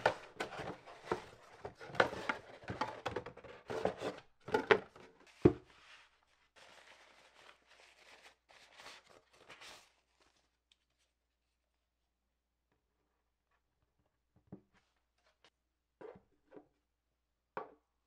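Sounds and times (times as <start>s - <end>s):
soft wrapping rustling: 5.2s - 11.1s.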